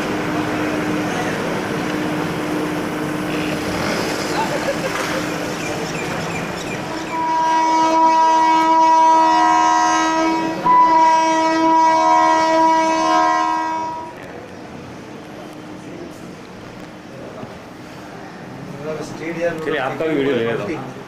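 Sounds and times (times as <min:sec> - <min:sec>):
locomotive air horn: 0:07.1 - 0:14.2.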